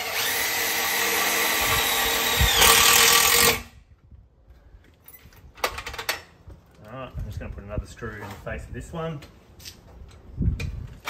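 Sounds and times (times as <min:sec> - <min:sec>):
cordless drill driving screw into metal: 0:00.0 - 0:03.7.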